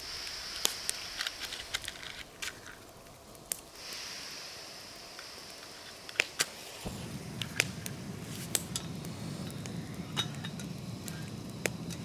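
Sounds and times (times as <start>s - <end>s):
gas flame rushing: 0.0s - 12.0s
burner igniter clicks: 6.1s - 12.0s.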